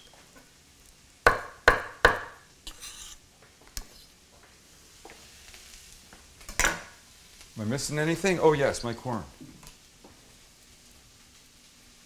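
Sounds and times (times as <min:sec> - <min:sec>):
faint sizzle: 0:00.0 - 0:12.0
utensil scraping a skillet: 0:02.6 - 0:04.2.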